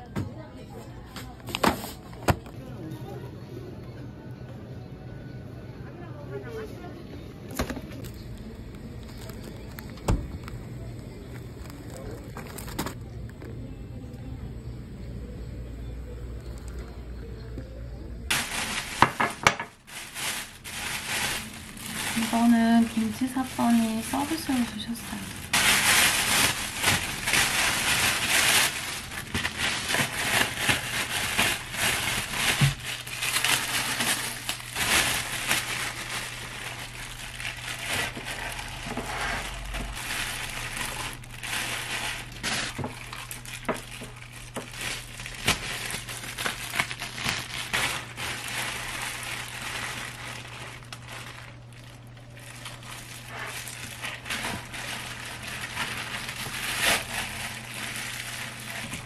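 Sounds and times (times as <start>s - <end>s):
plastic bags crinkling: 7.5s - 13.5s, 18.2s - 59.0s.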